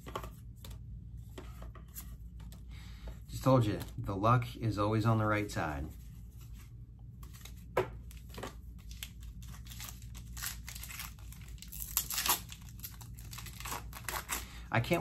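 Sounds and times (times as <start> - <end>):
foil wrapper crinkling: 8.8 - 14.4.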